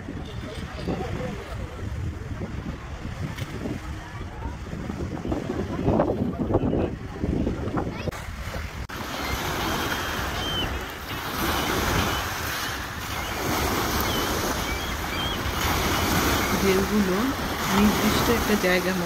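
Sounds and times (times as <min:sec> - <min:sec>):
waves washing onto pebble shore: 0:08.9 - 0:19.0.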